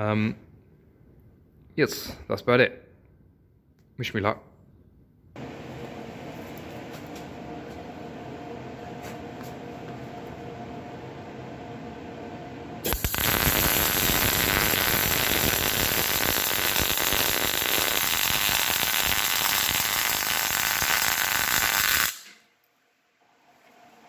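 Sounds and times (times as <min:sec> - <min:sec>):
welding arc crackling: 0:12.8 - 0:22.4.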